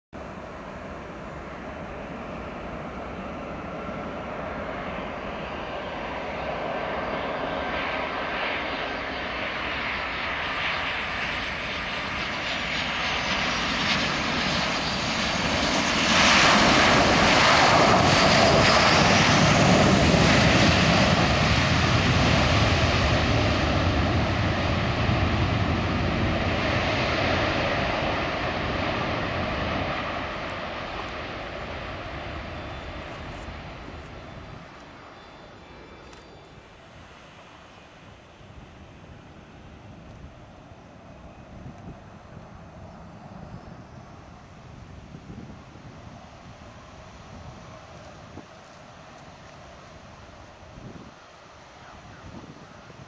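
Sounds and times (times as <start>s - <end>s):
jet engines roaring: 0.2s - 53.0s.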